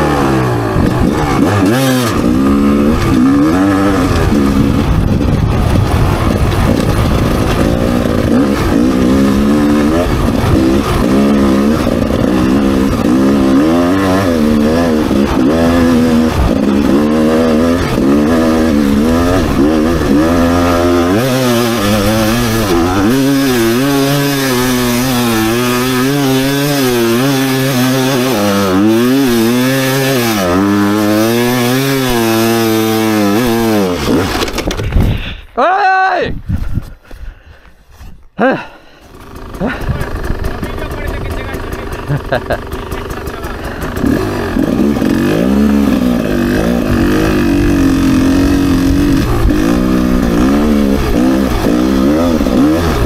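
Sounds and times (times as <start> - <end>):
dirt bike engine revving: 0.0 - 35.4, 39.0 - 53.0
heavy low rumble: 2.1 - 25.9.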